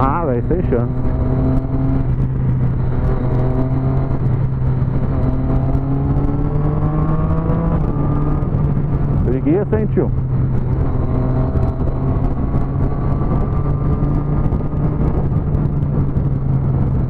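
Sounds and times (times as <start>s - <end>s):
low wind rumble: 0.0s - 17.0s
motorcycle engine accelerating: 0.0s - 17.0s.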